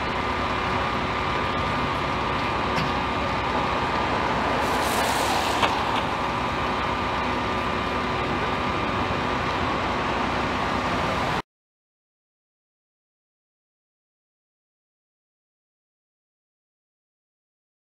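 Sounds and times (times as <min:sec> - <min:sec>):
fire engines idling: 0:00.0 - 0:11.4
brief hiss: 0:04.6 - 0:05.9.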